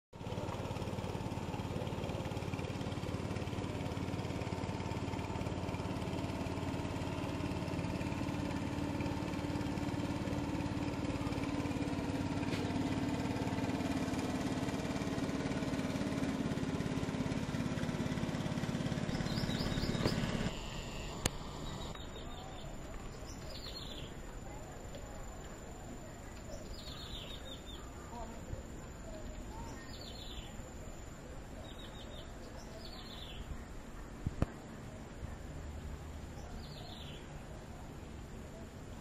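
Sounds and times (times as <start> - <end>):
boat engine droning: 0.2 - 39.0.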